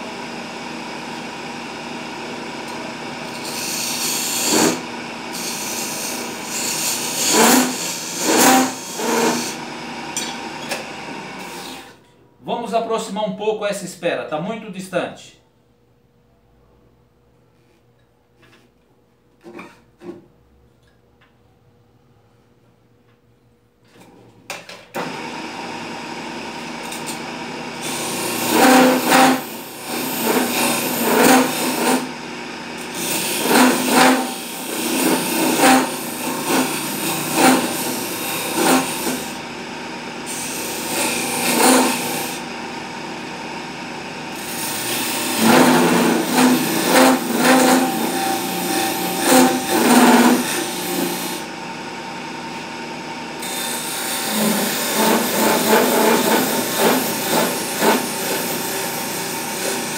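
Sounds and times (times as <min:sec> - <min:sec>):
wood lathe humming: 0:00.0 - 0:11.9, 0:25.0 - 0:59.9
gouge scraping spinning wood: 0:05.4 - 0:09.6, 0:27.8 - 0:32.1, 0:32.8 - 0:39.4, 0:44.3 - 0:51.4, 0:53.4 - 0:59.9.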